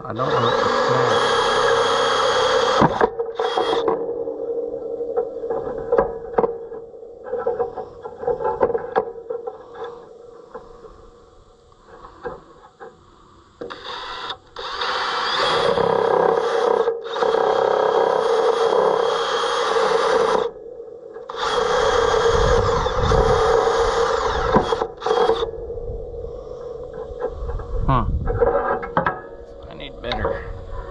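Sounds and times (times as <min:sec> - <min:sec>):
cordless drill boring wood: 0:00.0 - 0:04.0, 0:13.6 - 0:20.5, 0:21.3 - 0:25.5.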